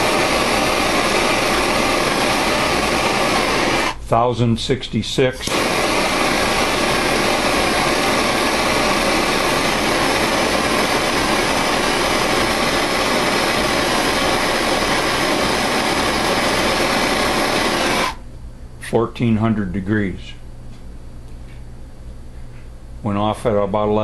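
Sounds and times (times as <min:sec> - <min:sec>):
gas torch flame hissing: 0:00.0 - 0:04.0, 0:05.2 - 0:18.2.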